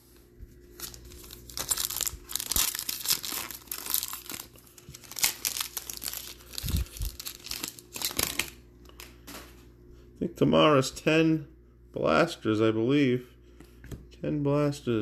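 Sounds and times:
foil wrapper tearing and crinkling: 0.8 - 8.6.

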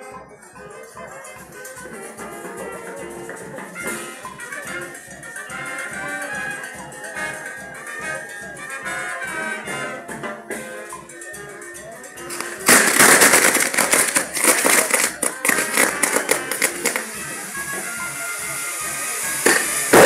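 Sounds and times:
music playing: 0.0 - 20.0
fireworks cracking and banging: 12.2 - 20.0.

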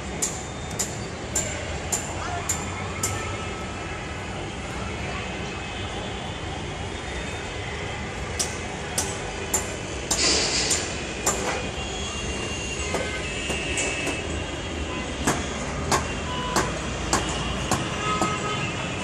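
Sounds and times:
city noise: 0.0 - 19.0
brief hiss: 10.2 - 10.9.

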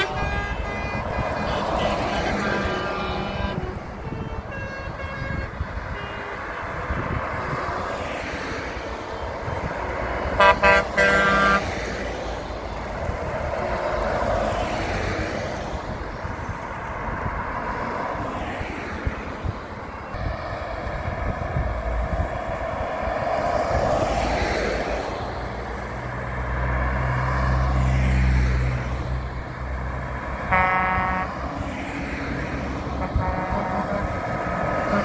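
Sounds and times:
truck horn blasts: 0.0 - 7.6, 10.3 - 11.7, 30.4 - 31.5, 32.8 - 35.0
trucks and cars driving past: 0.0 - 35.0.

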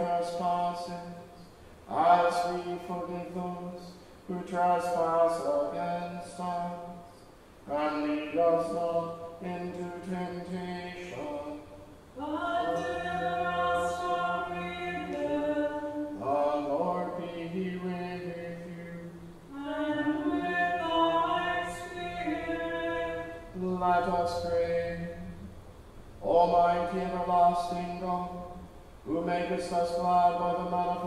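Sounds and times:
choir singing plainchant: 7.7 - 25.4.

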